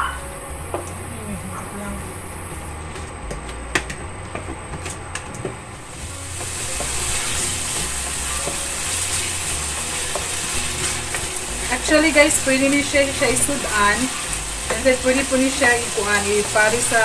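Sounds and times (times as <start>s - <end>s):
sauce sizzling in a pan: 5.8s - 17.0s
wooden spatula scraping a pan: 6.0s - 17.0s.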